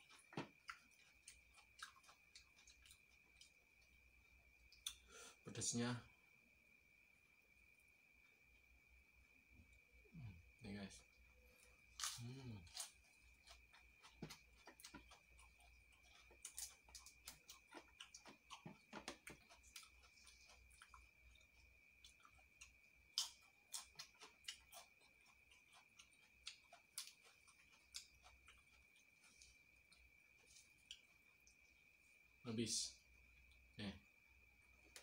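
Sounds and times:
person chewing lettuce: 0:00.0 - 0:03.9, 0:11.8 - 0:31.6.

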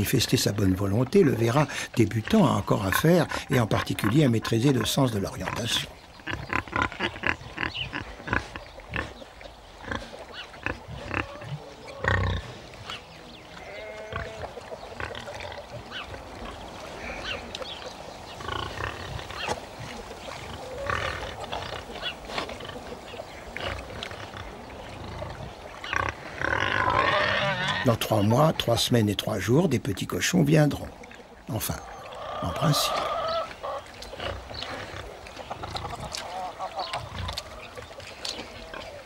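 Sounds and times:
pigs grunting: 0:00.0 - 0:39.0
pig squeals: 0:25.9 - 0:28.1, 0:31.8 - 0:33.9.

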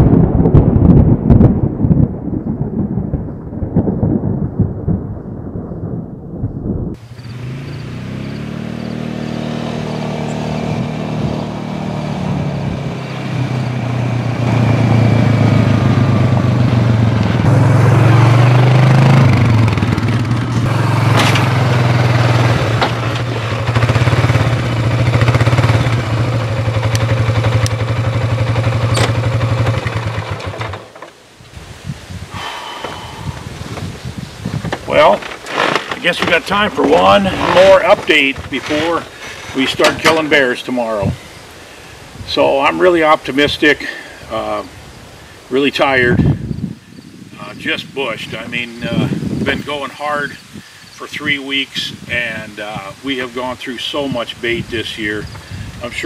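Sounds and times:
thunder rumbling: 0:00.0 - 0:08.5, 0:10.8 - 0:30.6
atv engine running: 0:07.0 - 0:31.1, 0:32.3 - 0:41.2.

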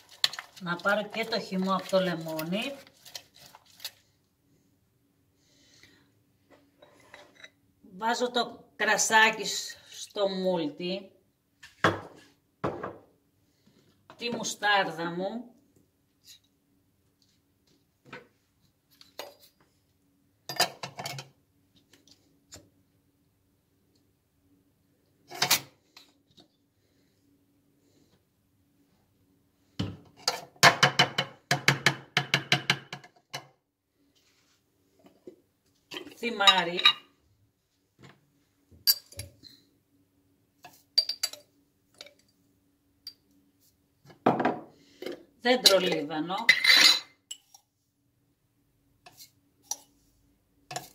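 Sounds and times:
faint steady hum: 0:12.4 - 0:30.5.

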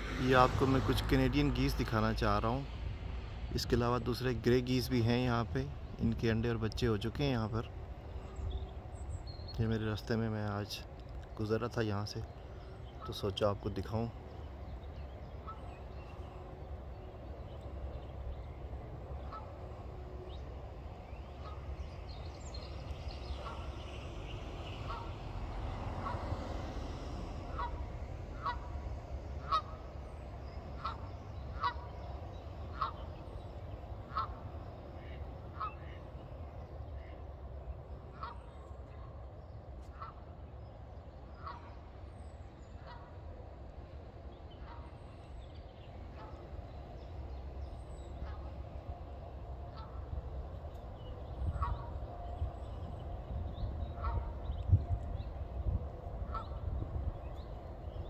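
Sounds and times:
steady low rumble: 0:00.0 - 0:58.0
geese honking: 0:11.6 - 0:40.4, 0:41.2 - 0:42.0, 0:42.6 - 0:58.0.

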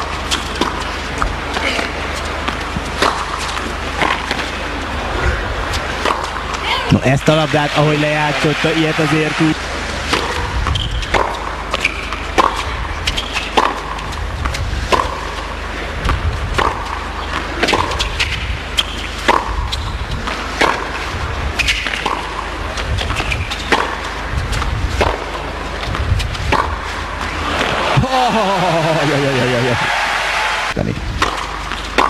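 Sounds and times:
racket hitting tennis ball: 0:00.0 - 0:04.6, 0:06.0 - 0:06.5, 0:10.1 - 0:28.0, 0:31.2 - 0:32.0
low arena hum: 0:00.0 - 0:32.0.

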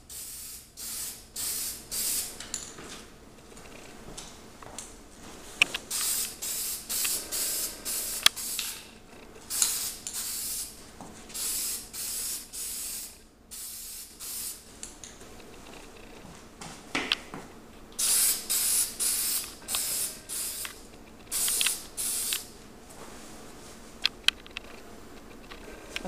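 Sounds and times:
aerosol can spraying: 0:00.1 - 0:02.3, 0:05.8 - 0:08.8, 0:09.5 - 0:14.6, 0:18.0 - 0:22.5.

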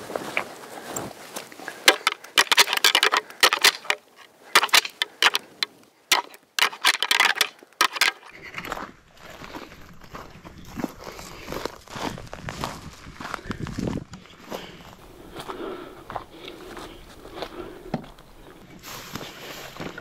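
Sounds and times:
antlers rattling together: 0:01.8 - 0:08.8.

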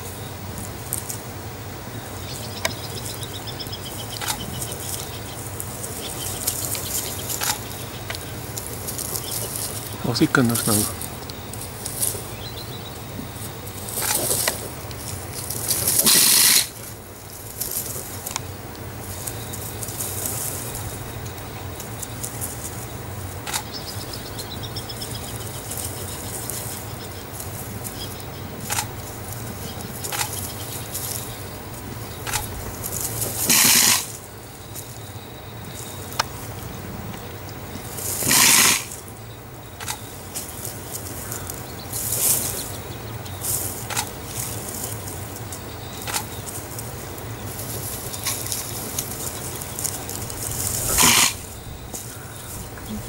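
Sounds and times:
clicks and rustles from scuffle: 0:13.8 - 0:18.5
harsh noisy bursts: 0:15.4 - 0:17.0, 0:32.2 - 0:34.3, 0:38.1 - 0:39.0, 0:50.0 - 0:51.6.

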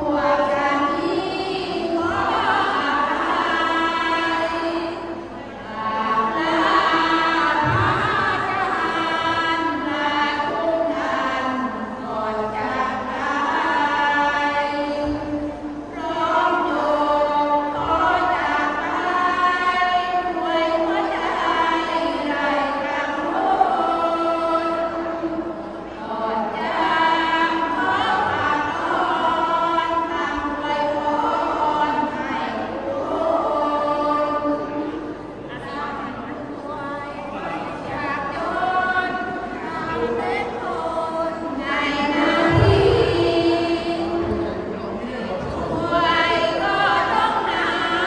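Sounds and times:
women chanting: 0:00.0 - 0:48.0.

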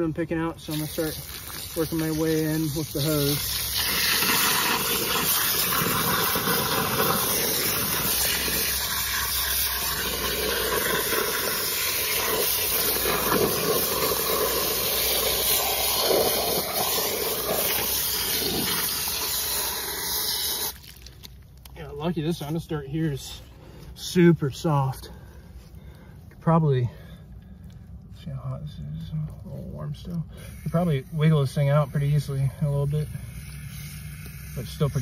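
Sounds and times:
hose spraying water on wet soil: 0:00.2 - 0:21.3, 0:29.5 - 0:35.0.

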